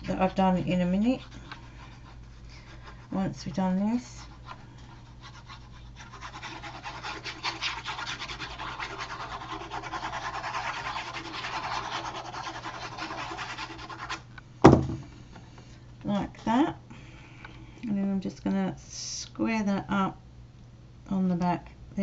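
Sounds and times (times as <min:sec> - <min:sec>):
sharp knock: 0:14.6 - 0:15.1.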